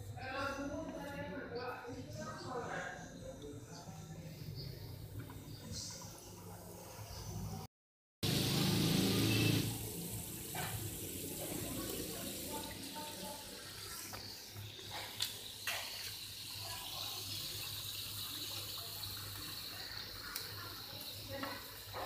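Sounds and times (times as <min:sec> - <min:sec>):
chicken deep-frying in oil: 0:08.2 - 0:22.0.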